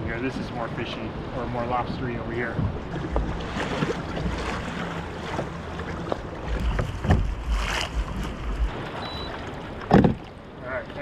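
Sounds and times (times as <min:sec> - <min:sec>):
water lapping around kayak: 0:00.0 - 0:11.0
wind on microphone: 0:06.4 - 0:09.3.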